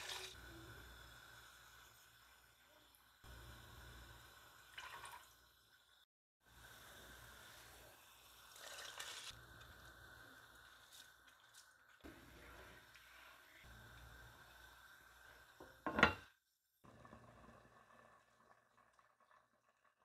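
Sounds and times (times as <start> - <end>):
drips and splashes into a pot: 4.7 - 5.5, 8.3 - 9.4.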